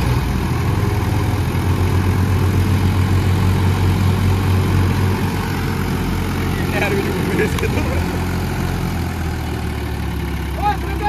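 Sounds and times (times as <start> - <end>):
diesel tractor engines under load: 0.0 - 11.0.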